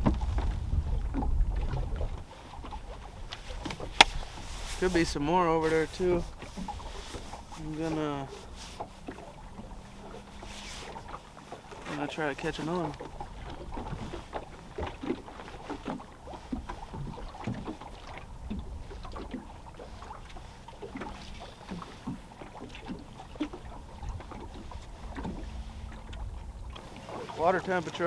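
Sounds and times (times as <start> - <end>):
wind on microphone: 0.0 - 7.8
small waves lapping against boat hull: 0.0 - 28.0.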